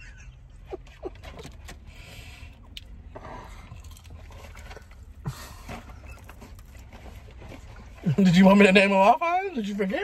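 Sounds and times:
chewing: 2.6 - 5.1.

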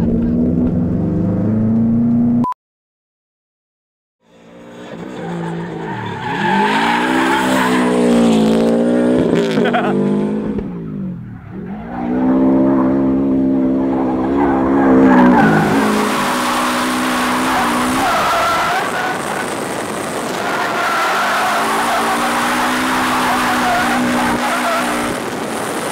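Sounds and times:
car engine revving: 0.0 - 2.4, 4.3 - 25.9
tyres squealing on pavement: 4.7 - 8.4, 13.8 - 25.9.

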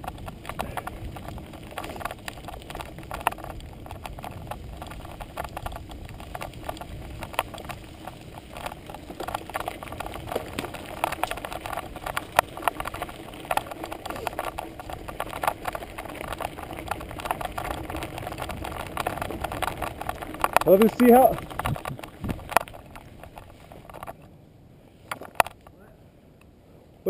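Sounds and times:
bicycle rattling and clicking: 0.0 - 24.3, 25.0 - 25.8
low tyre rumble: 0.0 - 27.0.

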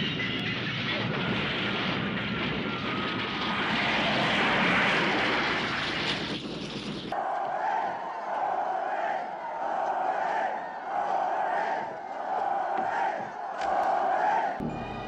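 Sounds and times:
rumbling explosion roar: 0.5 - 7.2.

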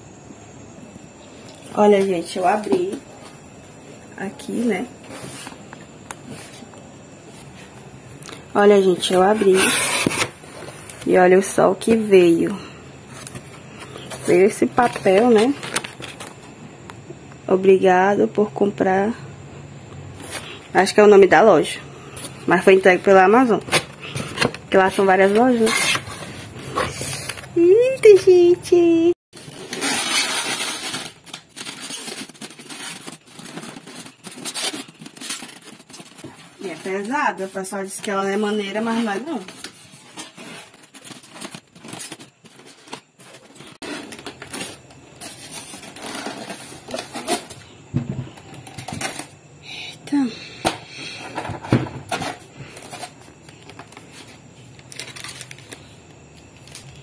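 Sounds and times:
styrofoam scraping cardboard: 9.0 - 10.8, 29.4 - 37.6.

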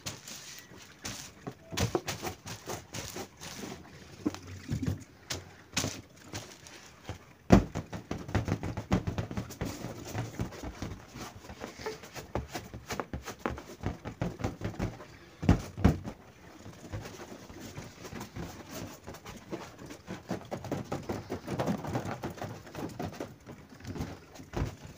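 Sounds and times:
hits on balloon: 7.5 - 10.9.

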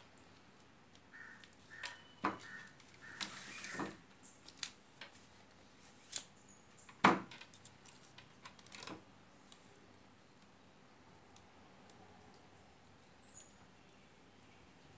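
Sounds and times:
tape rustling: 0.6 - 6.3, 7.2 - 9.8.

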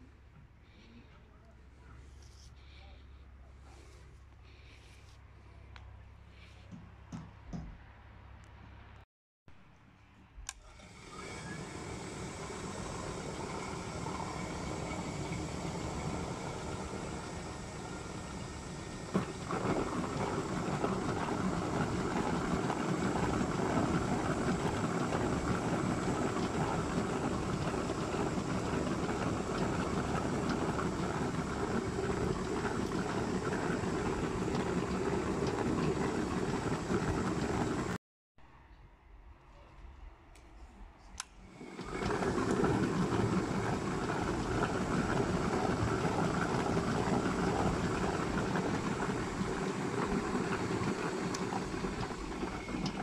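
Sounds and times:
electric motor spinning: 10.7 - 38.0, 41.6 - 53.0.

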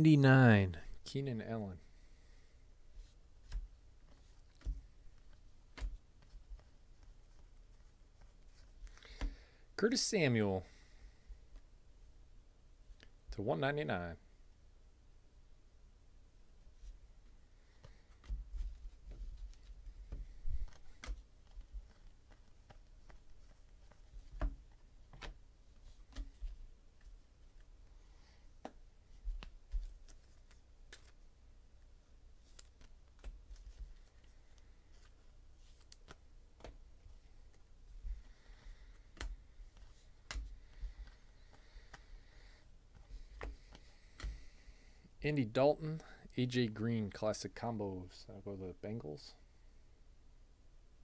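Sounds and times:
cards clicking and tapping: 3.4 - 9.4, 17.8 - 25.4, 28.6 - 31.2, 32.4 - 36.8, 37.4 - 44.6.

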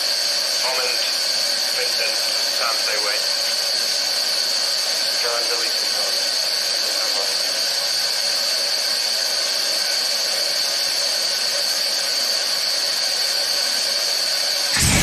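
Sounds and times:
pressurised gas hissing: 14.7 - 15.0.

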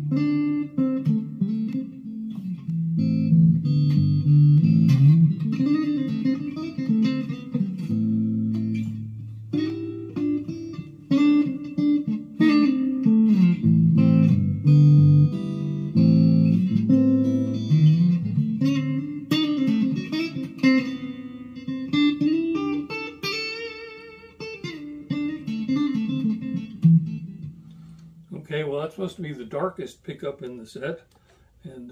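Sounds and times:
electric guitar notes and chords: 0.0 - 28.3.

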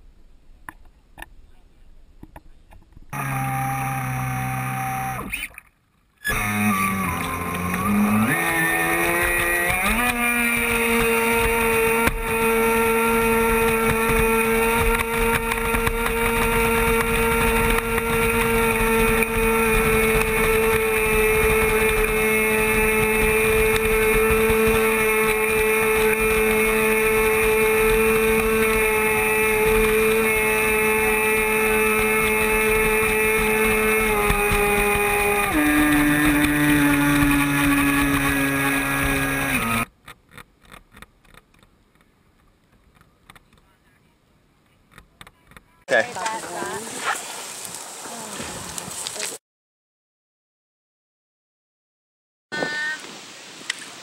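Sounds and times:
electric motor whining: 3.1 - 5.5, 6.2 - 39.9
water and wind hiss: 8.3 - 39.4, 45.9 - 49.4, 52.6 - 54.0.

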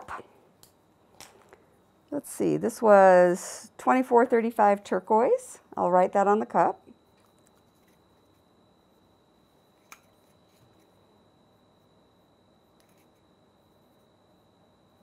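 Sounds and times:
faint high-pitched whine: 0.0 - 15.0.

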